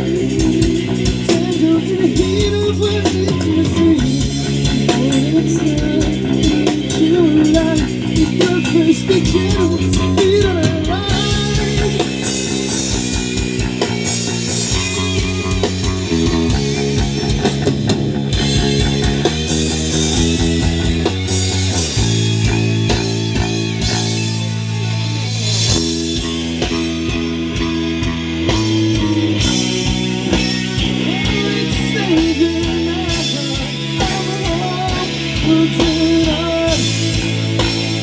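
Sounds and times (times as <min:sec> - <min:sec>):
bass guitar: 0:00.0 - 0:38.0
drum kit: 0:00.0 - 0:38.0
electric guitars: 0:00.0 - 0:38.0.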